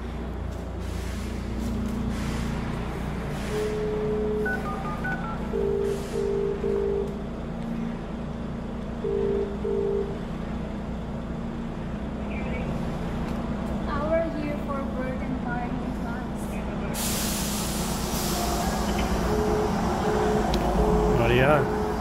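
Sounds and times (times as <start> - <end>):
intercom beeps: 3.5 - 7.1, 9.0 - 10.2, 18.8 - 21.9
intercom two-tone ringing: 3.6 - 7.1, 9.0 - 10.2, 18.9 - 21.9.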